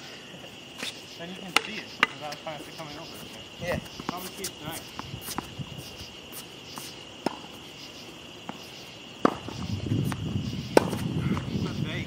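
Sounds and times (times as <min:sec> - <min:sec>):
crickets chirring: 0:00.0 - 0:12.0
tennis ball impacts: 0:01.5 - 0:02.4, 0:03.8 - 0:05.6, 0:06.4 - 0:07.7, 0:08.4 - 0:11.6.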